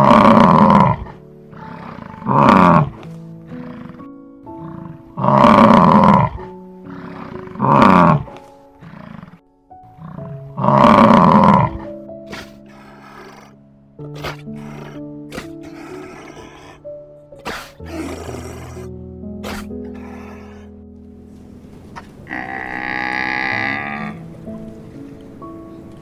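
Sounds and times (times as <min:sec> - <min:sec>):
background music with held notes: 0:00.0 - 0:26.0
loud animal calls: 0:03.6 - 0:20.7, 0:22.0 - 0:24.2.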